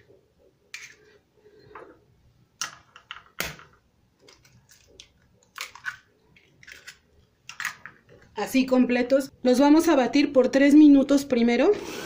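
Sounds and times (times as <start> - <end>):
eggshell cracking: 4.3 - 7.9.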